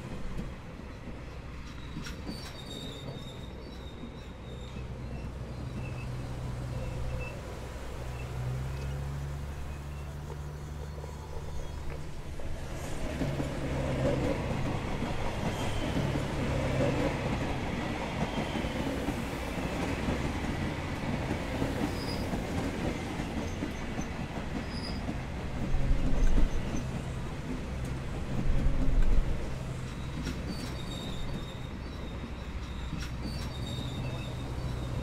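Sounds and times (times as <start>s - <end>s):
wheels clickety-clack: 0.0s - 3.4s, 9.8s - 35.0s
train rumbling on rails: 0.0s - 35.0s
faint wheel squeals: 1.7s - 12.1s, 29.8s - 35.0s.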